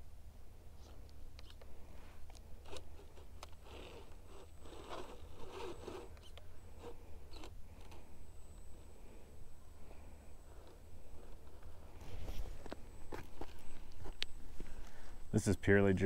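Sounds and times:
toy car tyres crunching on rock: 2.3 - 8.0.

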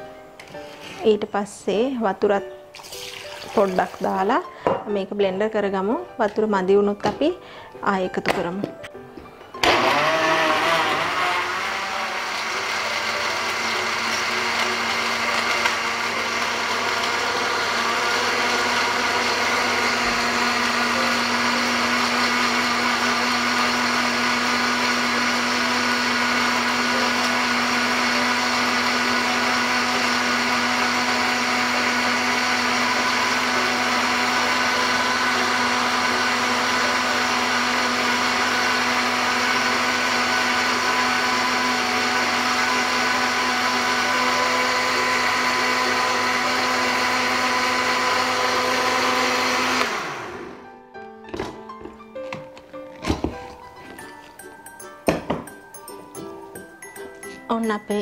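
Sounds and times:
electric blender grinding ice: 9.6 - 50.6.

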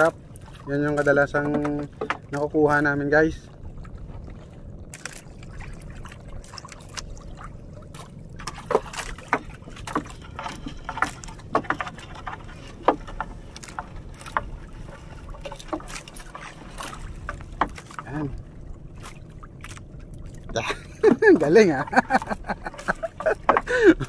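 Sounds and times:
low rumble: 0.0 - 24.0
net knocking against boat hull: 8.4 - 14.6, 21.0 - 24.0.

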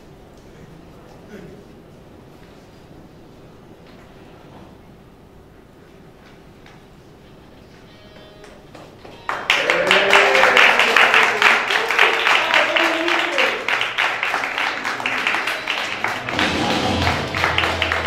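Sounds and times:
audience applauding: 8.7 - 18.0
voices cheering: 9.5 - 18.0.

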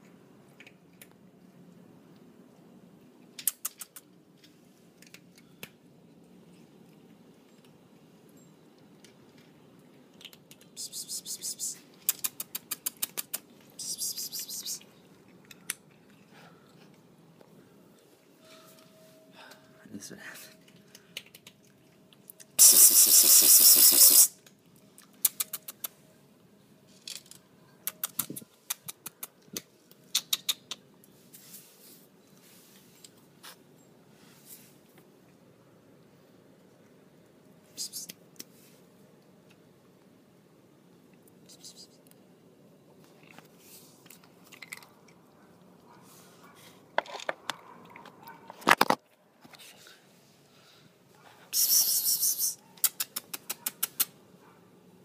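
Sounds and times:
cats crunching dry kibble: 0.0 - 18.1, 20.6 - 26.0, 34.7 - 41.4, 42.0 - 50.0.

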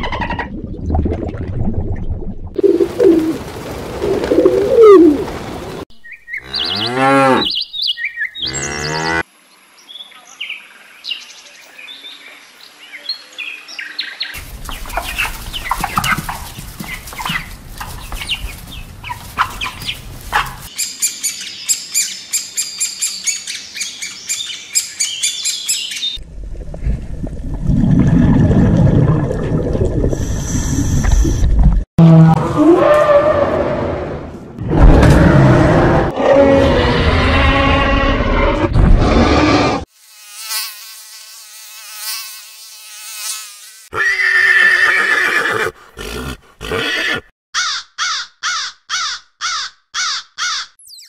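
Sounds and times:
pigeons calling: 14.4 - 20.8
chickens clucking: 14.7 - 20.7.

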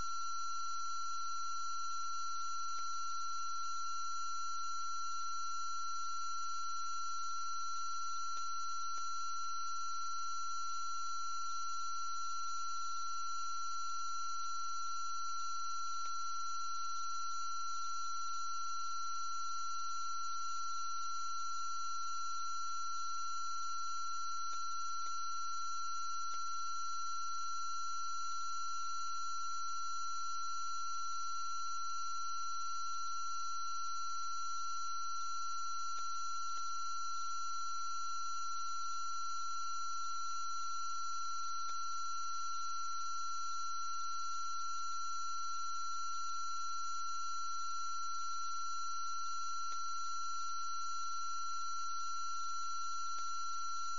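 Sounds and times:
faint ticks: 16.0 - 16.2, 24.5 - 25.2, 26.3 - 26.5, 35.9 - 36.7, 41.6 - 41.8.

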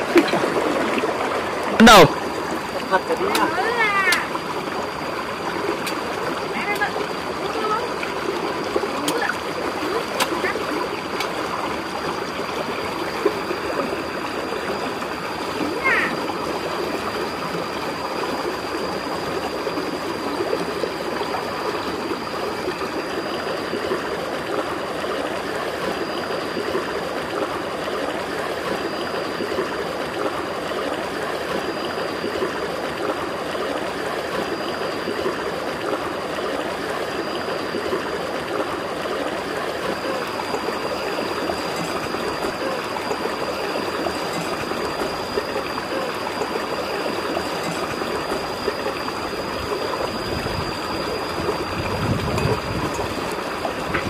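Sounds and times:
stream trickling over stones: 0.0 - 54.0
thin high whine: 36.8 - 54.0.

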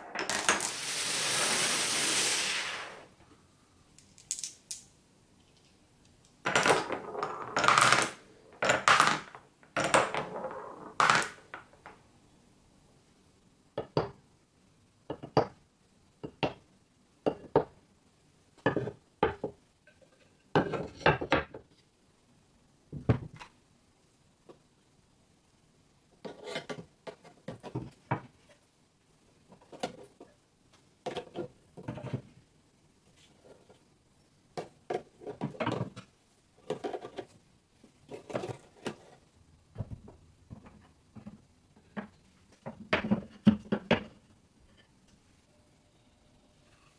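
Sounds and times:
marbles rolling through wooden run: 0.0 - 3.1, 6.5 - 11.9.

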